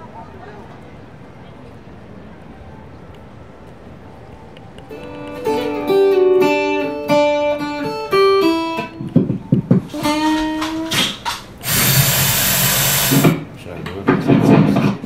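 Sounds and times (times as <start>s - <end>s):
acoustic guitar plucked notes: 4.9s - 9.1s.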